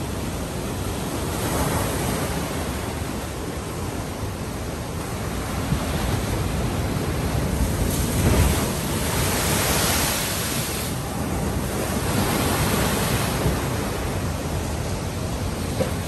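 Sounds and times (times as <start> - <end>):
waves washing: 0.0 - 16.0
big wave crashing: 7.1 - 14.7.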